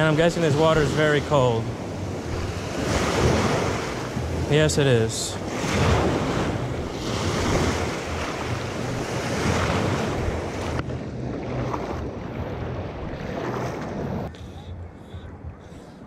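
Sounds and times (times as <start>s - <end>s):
small waves breaking: 0.0s - 14.6s
wind on microphone: 5.4s - 16.0s.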